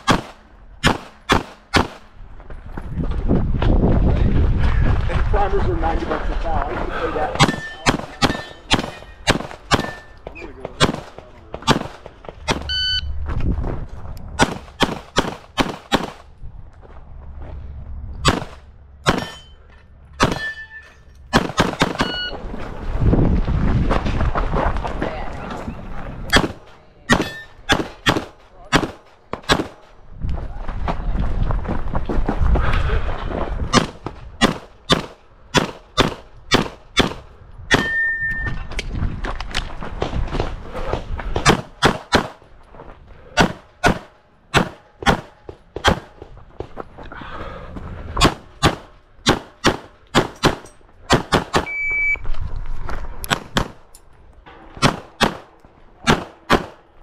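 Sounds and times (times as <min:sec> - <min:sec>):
handgun shots: 0:00.0 - 0:02.0, 0:18.2 - 0:19.4, 0:26.3 - 0:29.8
steel targets ringing: 0:07.4 - 0:10.2, 0:19.1 - 0:21.1, 0:27.1 - 0:27.7
ringing tone: 0:22.0 - 0:22.4.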